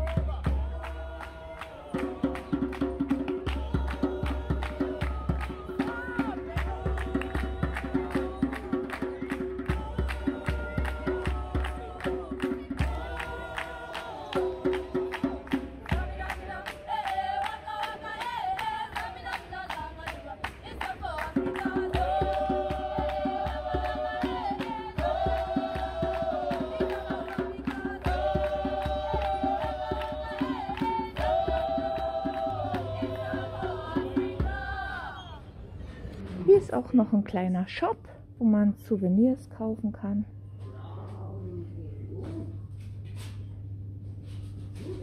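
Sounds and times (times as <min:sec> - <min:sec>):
fast percussion beat and bass: 0:00.0 - 0:17.3, 0:20.6 - 0:34.9
voices singing long notes: 0:21.5 - 0:35.6.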